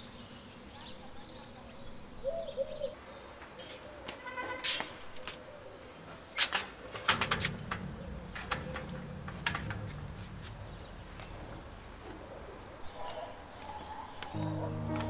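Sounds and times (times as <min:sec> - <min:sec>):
metal drying rack clattering: 0:06.5 - 0:12.3
low rumble: 0:07.2 - 0:12.7, 0:14.4 - 0:15.0.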